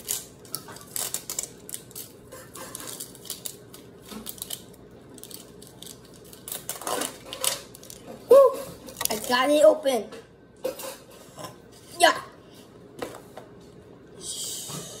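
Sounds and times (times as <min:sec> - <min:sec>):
plastic packaging crinkling: 0:00.0 - 0:08.2.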